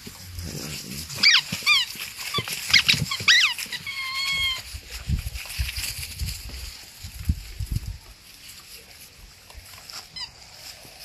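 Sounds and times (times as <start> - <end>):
puppy whining: 1.1 - 4.7
puppies yelping: 1.2 - 4.7.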